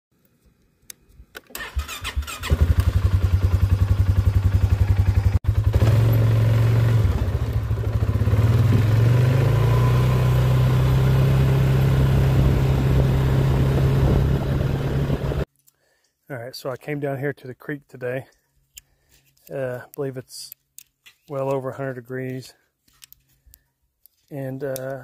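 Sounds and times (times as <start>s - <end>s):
quad engine idling and revving: 2.0s - 15.5s.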